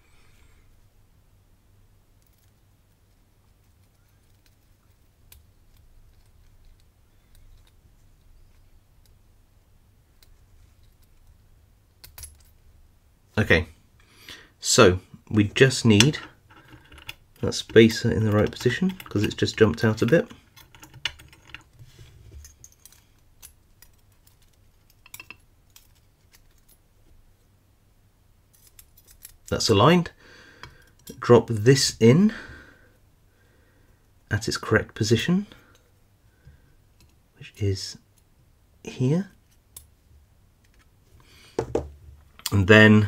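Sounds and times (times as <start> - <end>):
light clicks of small metal parts: 2.2 - 9.2, 10.2 - 12.6, 16.0 - 21.8, 22.4 - 27.2, 28.5 - 29.8, 30.6 - 31.2, 37.0 - 37.2.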